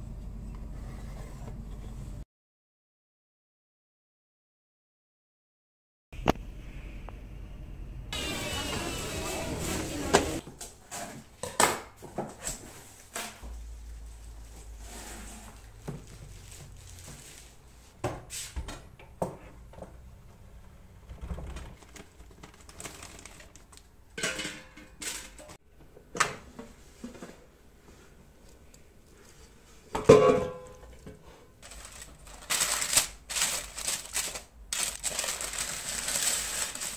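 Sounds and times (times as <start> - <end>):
fry basket clattering: 30.0 - 36.9.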